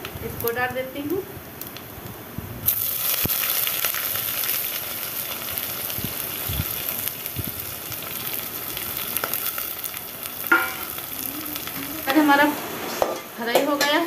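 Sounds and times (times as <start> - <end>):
faint crackles: 0.0 - 13.0
onions sizzling in hot oil: 0.0 - 14.0.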